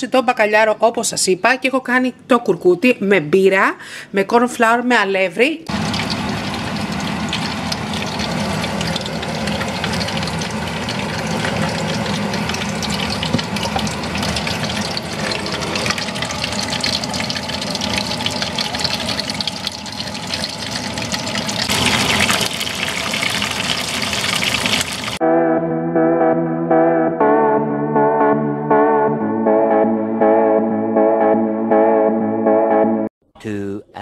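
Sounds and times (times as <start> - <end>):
fish deep-frying in oil: 5.7 - 25.2.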